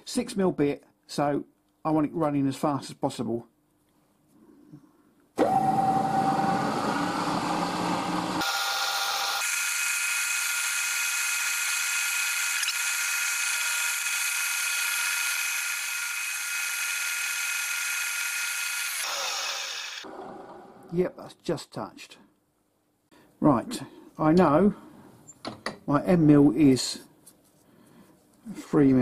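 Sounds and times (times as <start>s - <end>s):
milling machine spindle whine: 5.4s - 20.9s.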